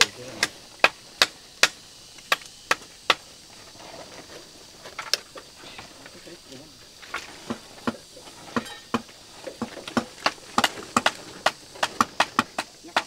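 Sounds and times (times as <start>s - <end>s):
hand tool striking hard material: 0.0s - 3.3s, 7.3s - 13.0s.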